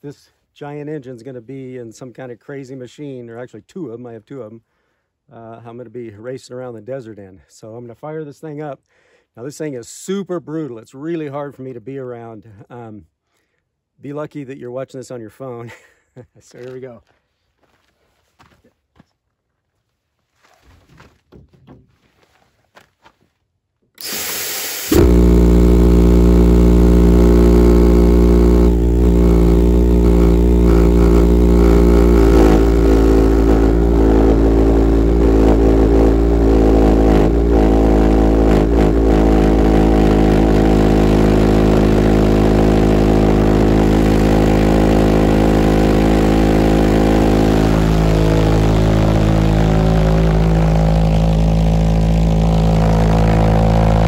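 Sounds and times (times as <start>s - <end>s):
pulsejet engine droning: 24.0s - 54.0s.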